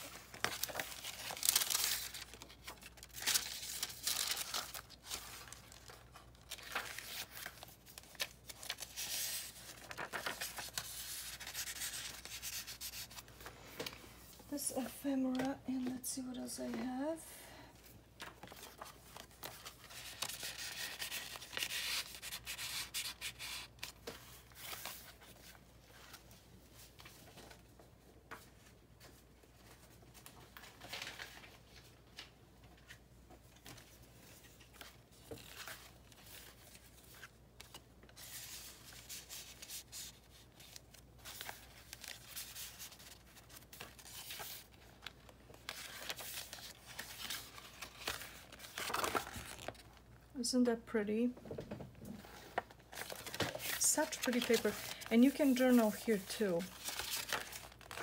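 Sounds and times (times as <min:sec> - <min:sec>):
paper rustling and sliding: 0:00.0 - 0:14.3, 0:52.2 - 0:58.0.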